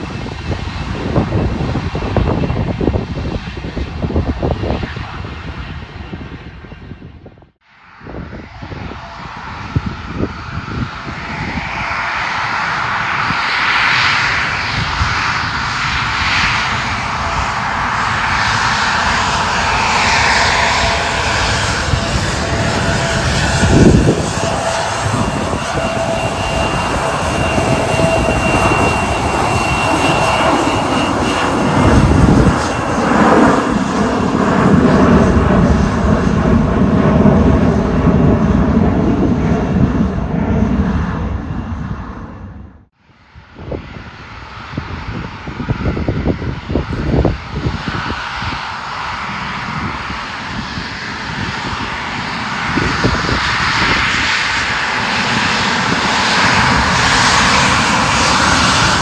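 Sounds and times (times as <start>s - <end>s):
jet engines rushing with whine: 0.0s - 59.0s
low rumble: 14.2s - 48.6s.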